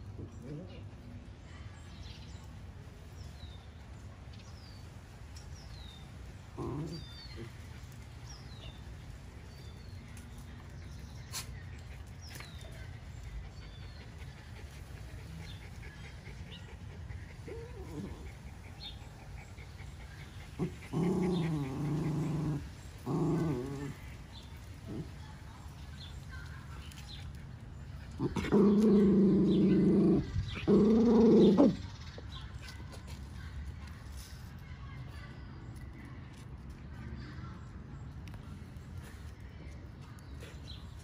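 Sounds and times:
puppy growling: 6.5s - 7.6s, 15.4s - 25.2s, 28.1s - 31.9s.

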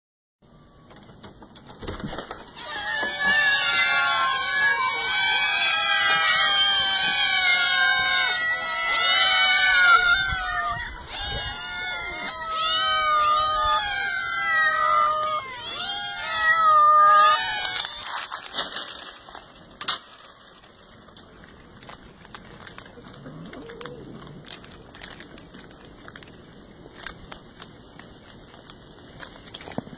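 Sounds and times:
cats crunching dry kibble: 2.0s - 29.9s
cats meowing: 2.4s - 19.4s, 21.8s - 27.7s.

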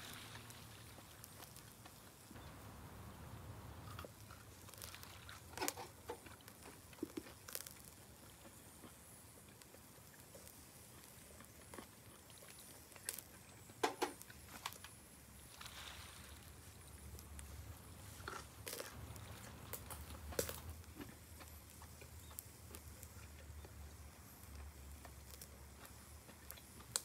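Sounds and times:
grill crackling and popping: 0.0s - 27.0s
low steady rumble: 2.3s - 5.4s.

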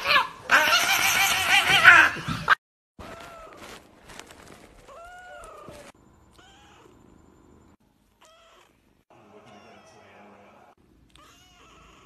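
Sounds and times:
kittens mewing: 11.1s - 12.0s.

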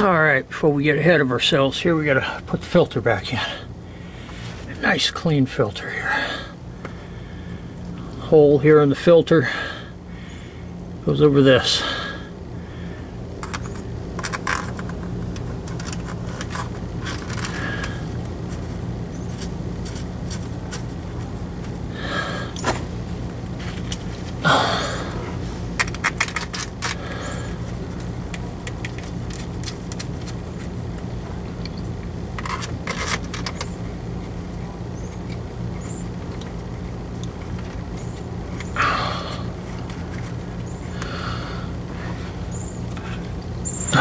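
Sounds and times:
steady low hum: 0.0s - 44.0s
screwdriver clicks and scrapes: 13.4s - 17.6s, 32.4s - 33.8s.

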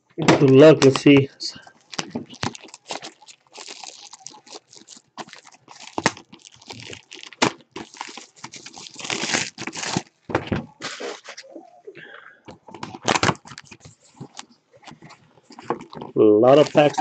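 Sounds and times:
plastic wrap crinkling and tearing: 0.5s - 11.6s, 12.7s - 17.0s.

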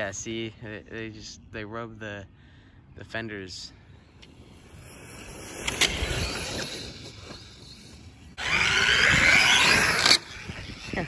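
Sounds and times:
toy truck electric motor: 4.4s - 11.0s.

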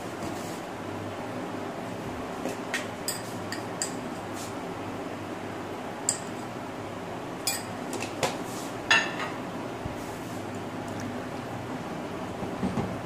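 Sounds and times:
kitchenware clinking: 7.4s - 7.8s, 8.9s - 9.4s.

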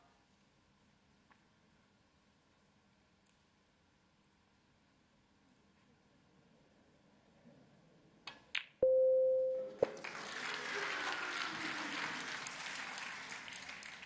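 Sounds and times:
steady electronic beep: 8.8s - 9.8s
crowd applause and cheering: 9.8s - 14.0s.

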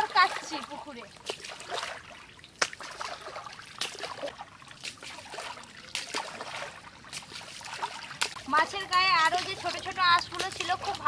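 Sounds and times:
fish splashing in water: 0.0s - 11.0s.

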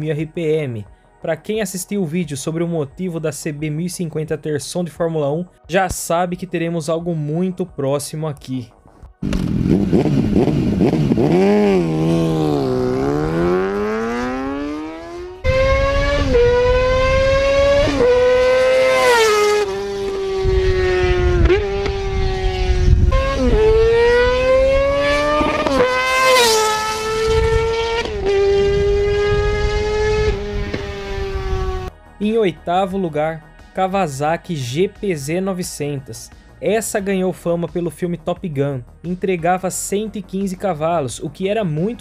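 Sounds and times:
motorcycle engine revving: 9.2s - 31.9s.

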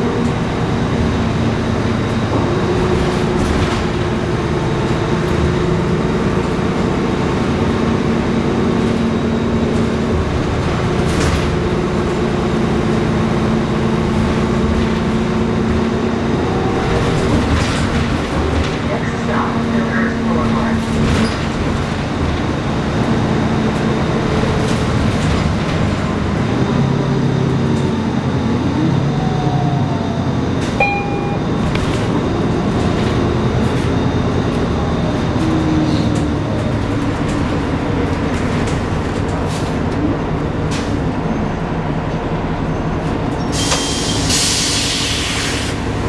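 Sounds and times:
bus engine and drivetrain noise: 0.0s - 46.0s
short beep: 30.8s - 31.6s.

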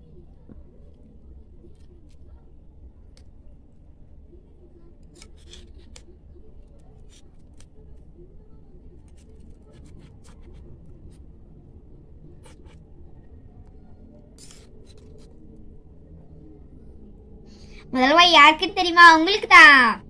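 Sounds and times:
low steady hum: 0.0s - 20.0s
knife scraping cake: 5.0s - 6.1s, 14.4s - 15.4s.

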